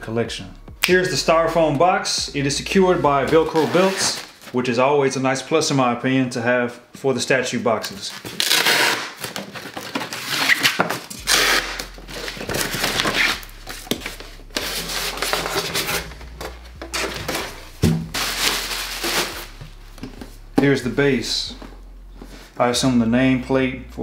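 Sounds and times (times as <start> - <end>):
styrofoam parts scraping: 3.3 - 4.6, 8.1 - 20.2
velcro straps tearing open: 8.4 - 9.2, 10.2 - 16.1
plastic bag crinkling: 9.2 - 20.4.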